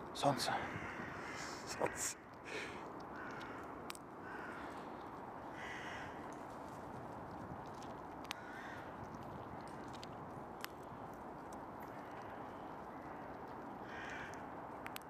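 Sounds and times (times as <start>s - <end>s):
crow cawing in the distance: 0.3s - 4.9s, 5.5s - 6.4s, 8.4s - 9.0s, 12.0s - 14.4s
squirrel cracking nut shells: 2.4s - 15.0s.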